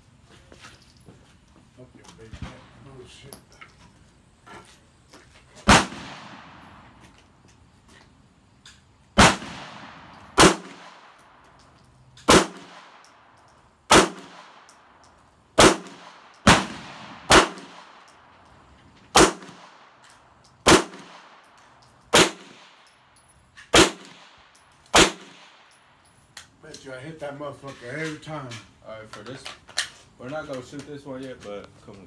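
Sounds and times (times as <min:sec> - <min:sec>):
handgun shots echoing: 0:09.2 - 0:11.4, 0:12.2 - 0:13.2, 0:13.9 - 0:14.9, 0:15.6 - 0:18.2, 0:19.2 - 0:23.0, 0:23.7 - 0:25.8.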